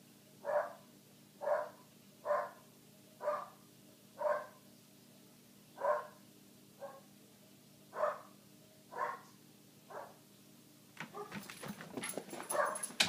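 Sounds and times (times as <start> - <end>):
dog barking: 0.4 - 2.6, 3.2 - 3.6, 4.2 - 4.6, 5.8 - 6.2, 6.8 - 7.1, 7.9 - 10.2, 11.0 - 11.5, 12.4 - 13.0.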